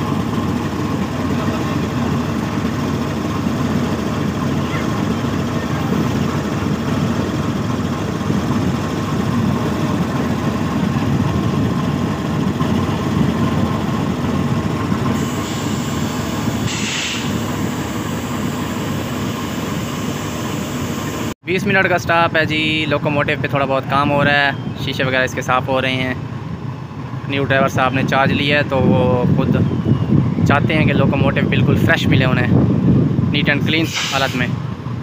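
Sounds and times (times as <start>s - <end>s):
locomotive engine idling: 0.0s - 31.0s
brief hiss: 15.3s - 17.4s, 33.8s - 34.6s.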